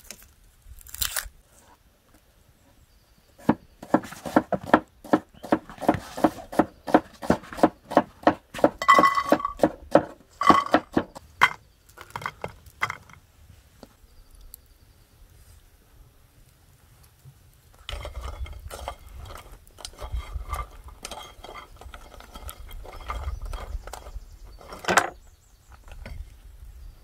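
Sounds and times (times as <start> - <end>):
cleaver chopping on wooden board: 3.4 - 11.2
chestnuts dropping into metal pot: 8.8 - 9.7, 10.4 - 13.2.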